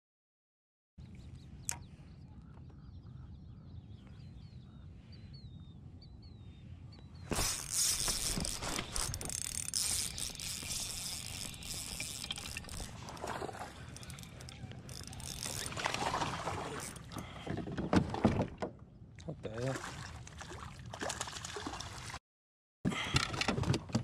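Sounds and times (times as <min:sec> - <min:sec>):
bird chirping: 0:01.2 - 0:09.1
fishing reel whirring: 0:07.3 - 0:16.1.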